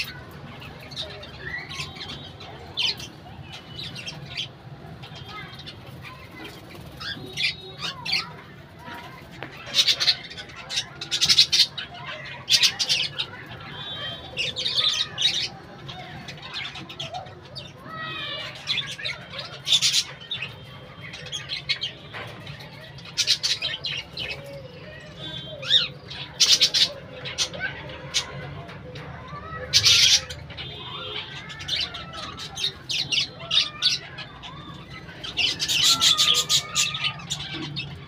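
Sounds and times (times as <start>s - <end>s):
birds chattering and chirping: 0.0s - 38.0s
harsh bird squawks: 29.3s - 38.0s.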